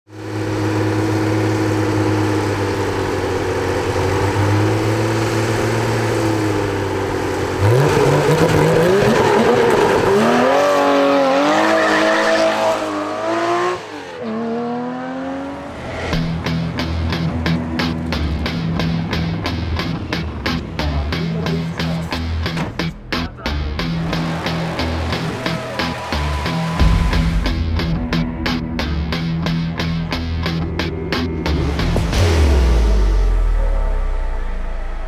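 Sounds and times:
car engine idling: 0:00.1 - 0:07.8, 0:15.5 - 0:35.0
car accelerating hard: 0:00.2 - 0:20.0, 0:23.8 - 0:27.4.

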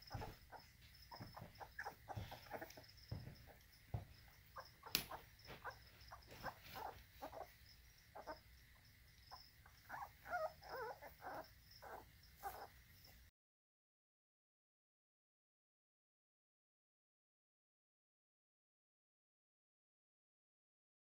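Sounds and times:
puppies squeaking and whimpering: 0:00.0 - 0:08.4, 0:09.6 - 0:12.7
crickets chirping: 0:00.0 - 0:13.3
sharp click: 0:04.9 - 0:05.2.

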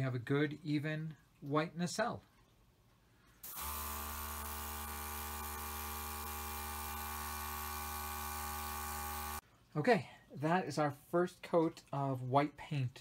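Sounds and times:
compressor humming: 0:03.4 - 0:09.4.

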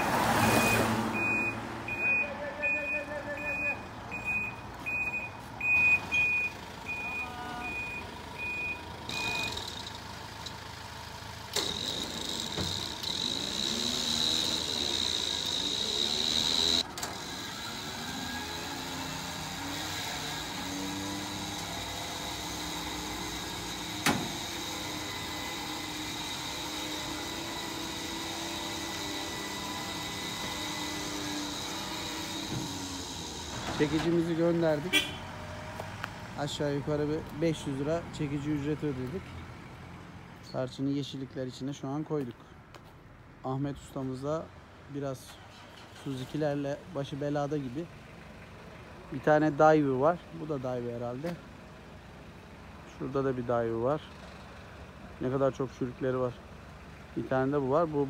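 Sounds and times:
reversing beeper: 0:00.0 - 0:09.6
hydraulics whining: 0:00.0 - 0:34.9
truck engine humming: 0:00.0 - 0:40.4.

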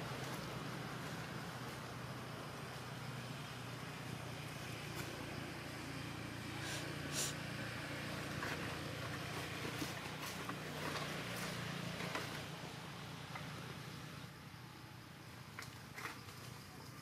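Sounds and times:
steady low hum: 0:00.0 - 0:17.0
scratchy rustles in dry leaves: 0:08.1 - 0:12.6.

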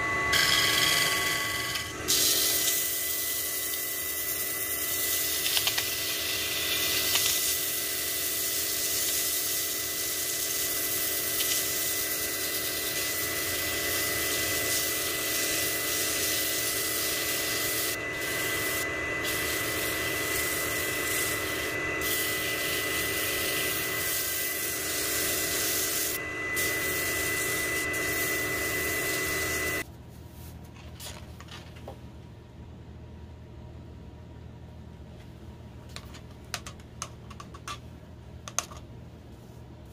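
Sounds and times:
lathe motor whine: 0:00.0 - 0:07.1, 0:10.6 - 0:29.8
sandpaper rasping on spinning wood: 0:08.3 - 0:29.8.

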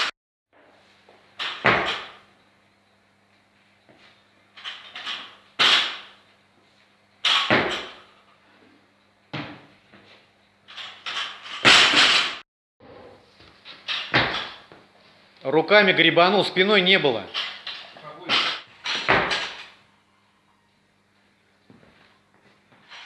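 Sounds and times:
barbell thuds and clanks: 0:01.4 - 0:02.2, 0:07.2 - 0:08.1, 0:10.8 - 0:12.4, 0:13.9 - 0:14.7, 0:18.3 - 0:19.7.

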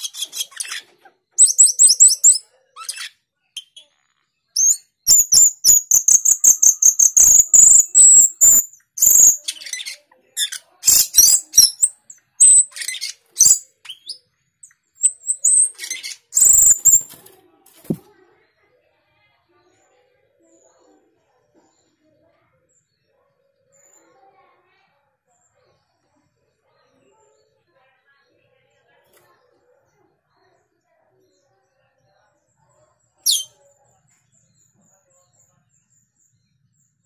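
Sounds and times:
starling squeaky chattering: 0:00.0 - 0:04.0, 0:04.6 - 0:17.3, 0:33.2 - 0:33.6
wing flutter: 0:15.8 - 0:18.1.

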